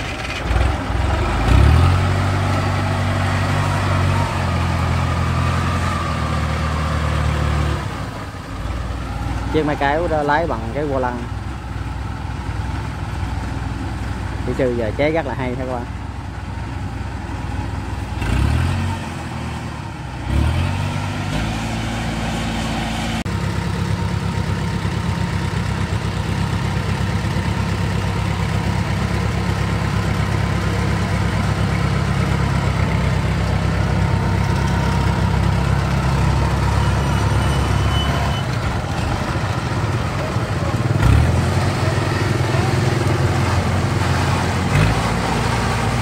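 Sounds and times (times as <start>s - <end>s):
crawler engine revving: 0.0s - 11.2s, 18.0s - 23.3s, 28.1s - 46.0s.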